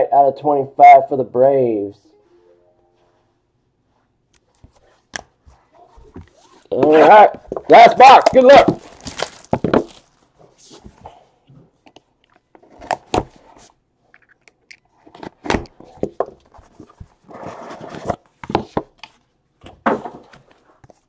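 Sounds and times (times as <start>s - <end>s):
plastic wrap rustling: 4.6s - 11.0s.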